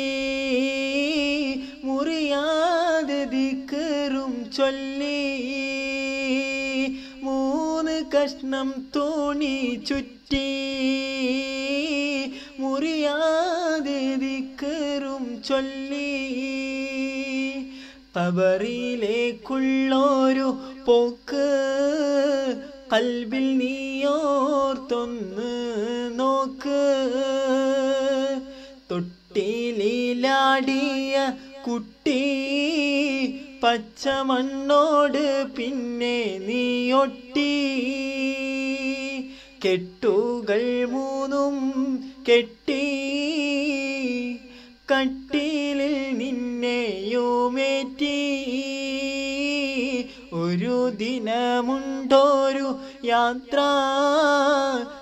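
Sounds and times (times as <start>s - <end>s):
man singing: 0.0s - 55.0s.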